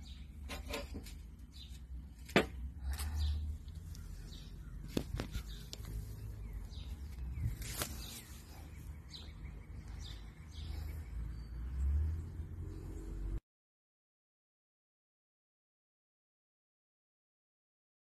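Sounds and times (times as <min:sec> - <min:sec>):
small birds chirping: 0:00.0 - 0:13.4.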